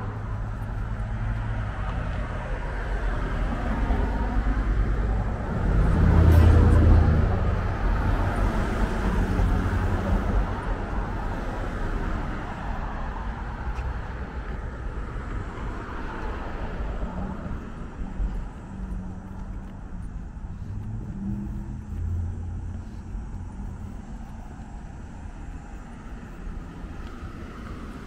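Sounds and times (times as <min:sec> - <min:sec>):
car passing close by: 0:00.0 - 0:19.0
quieter passing cars: 0:00.0 - 0:28.0.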